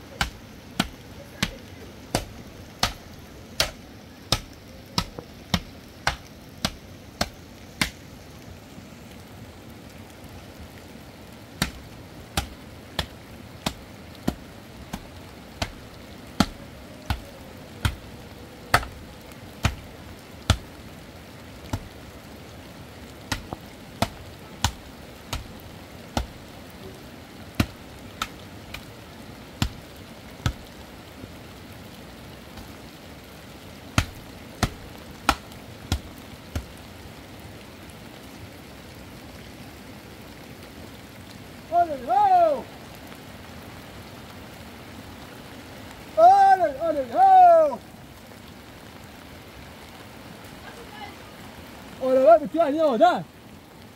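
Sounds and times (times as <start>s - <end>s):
background hiss: 0.0s - 53.9s
sharp chopping strikes: 0.2s - 8.0s, 11.6s - 11.8s, 12.4s - 15.0s, 17.8s - 18.0s, 18.7s - 18.9s, 19.6s - 19.8s, 23.3s - 25.5s, 26.2s - 26.4s, 27.6s - 28.8s, 34.0s - 36.7s.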